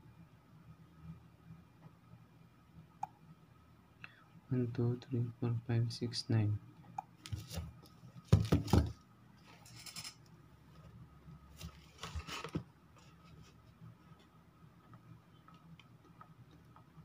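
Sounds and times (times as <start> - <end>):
faint steady hum: 0.0 - 17.0
taps and knocks on smartphone: 8.3 - 9.0.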